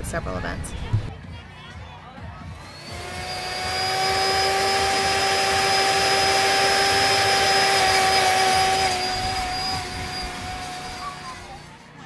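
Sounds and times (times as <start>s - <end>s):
milkshake mixer motor whining: 2.5s - 11.8s.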